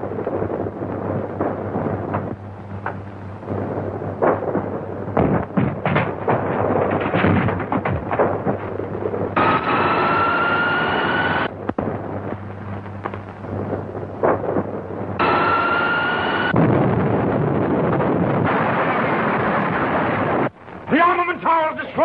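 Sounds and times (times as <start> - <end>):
electrical crackling and pops: 0.0 - 22.0
rising whine: 9.3 - 17.0.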